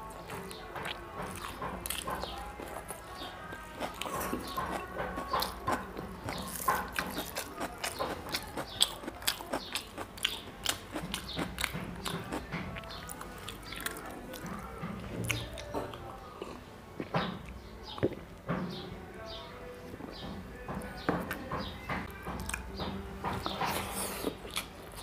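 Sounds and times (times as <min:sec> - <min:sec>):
close chewing with mouth clicks: 0:00.2 - 0:14.6, 0:23.4 - 0:25.0.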